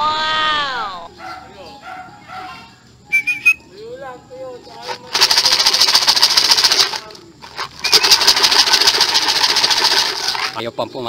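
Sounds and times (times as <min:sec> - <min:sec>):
wavering whistle-like call: 0:03.0 - 0:03.8, 0:07.8 - 0:08.3
soft gliding calls: 0:03.1 - 0:03.9
loud fast rattling: 0:04.8 - 0:10.6.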